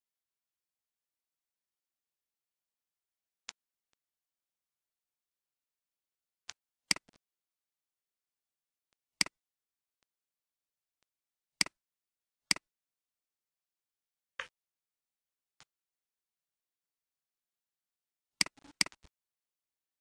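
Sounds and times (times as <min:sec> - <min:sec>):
computer mouse and keyboard clicks: 0:18.4 - 0:19.1.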